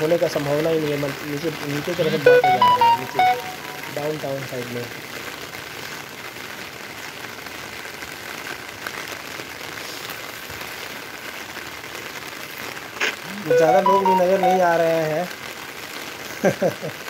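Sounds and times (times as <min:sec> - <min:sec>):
heavy rain on wet road: 0:00.0 - 0:02.0, 0:04.0 - 0:13.5, 0:14.7 - 0:17.0.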